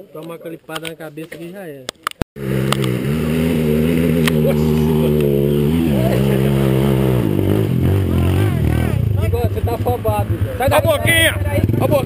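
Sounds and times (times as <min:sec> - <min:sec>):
dirt bike engine running: 0:02.4 - 0:12.0.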